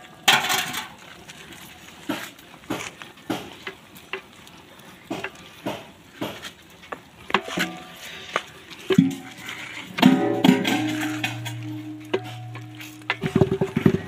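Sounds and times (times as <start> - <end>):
paddle scraping metal pot: 7.3 - 14.0.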